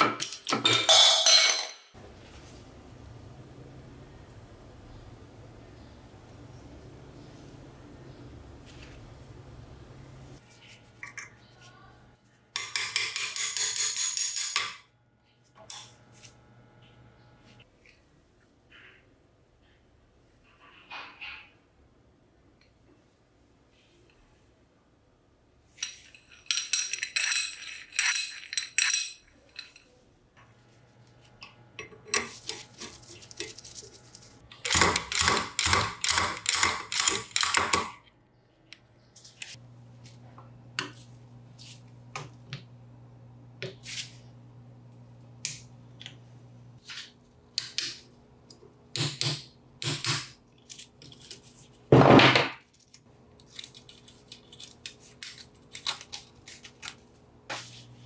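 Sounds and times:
metal tools clinking: 0.0s - 1.9s, 25.8s - 30.0s.

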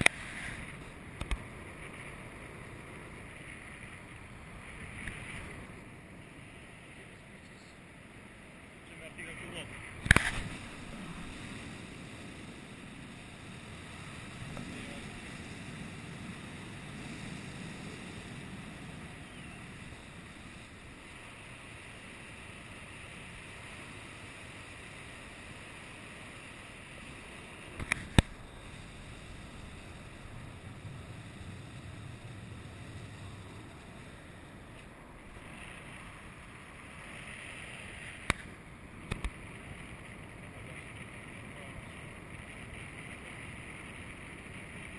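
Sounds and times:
wind rushing over microphone: 0.0s - 23.9s
sharp clicks: 10.0s - 10.5s.

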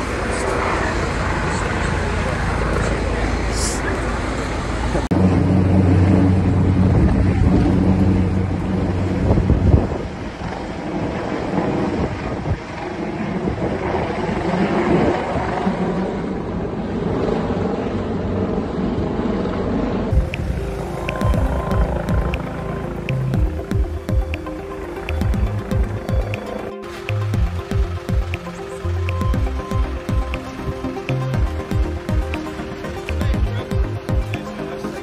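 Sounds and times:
vehicle engine rumble: 0.0s - 14.5s, 15.4s - 34.9s
wind buffeting microphone: 0.0s - 24.3s.

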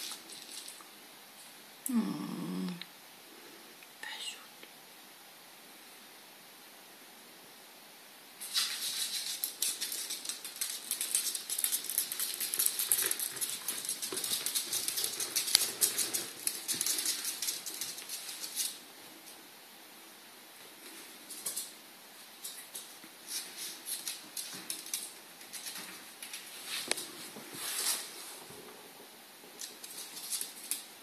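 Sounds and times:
claws scratching on laminate floor: 8.4s - 18.8s.

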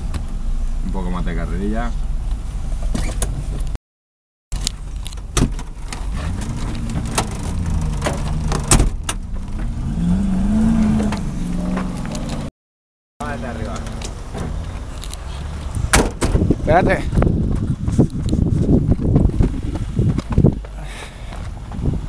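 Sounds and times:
sharp knocks and clatter: 5.1s - 9.8s
suv engine revving: 6.0s - 12.5s.

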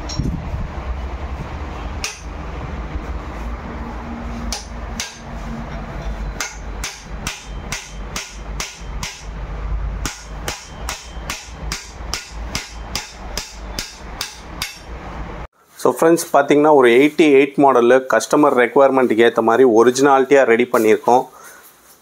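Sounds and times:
low rumble: 0.0s - 15.5s
sharp evenly spaced knocks: 2.0s - 2.4s, 4.4s - 15.1s.

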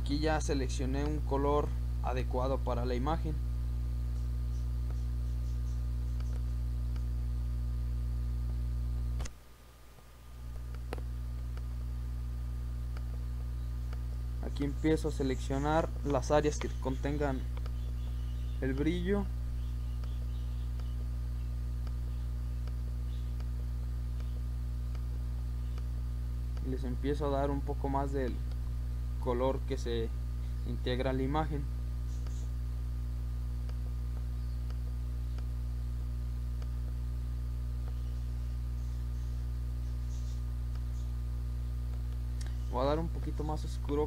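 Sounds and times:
low electrical hum: 0.0s - 44.0s
computer mouse clicks: 4.2s - 7.1s, 32.1s - 32.5s.

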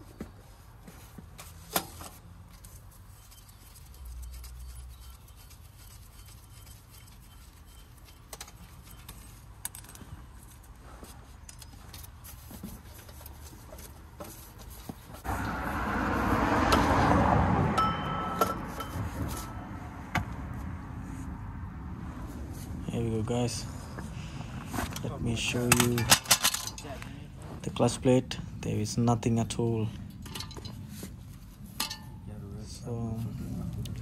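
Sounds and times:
hand tools clinking on metal: 25.0s - 27.1s, 31.8s - 32.3s.

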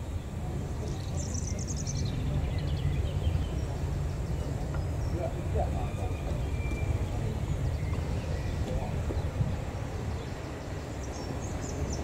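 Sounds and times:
steady low rumble: 0.0s - 12.0s
bird chirps: 0.8s - 9.4s.

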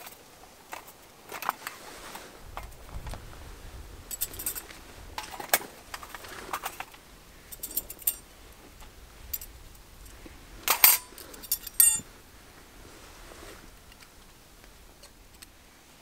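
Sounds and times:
small metal tools clicking: 4.1s - 8.2s, 10.7s - 12.0s
metal clink on steel bowl: 10.7s - 12.0s.

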